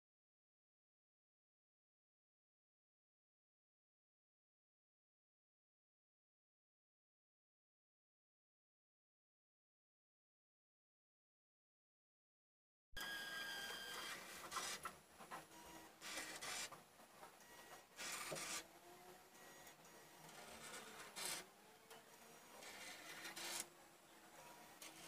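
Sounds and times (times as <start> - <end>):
robot whirring and grinding: 15.6 - 16.8, 17.5 - 23.7
faint wavering motor whine: 17.4 - 25.0.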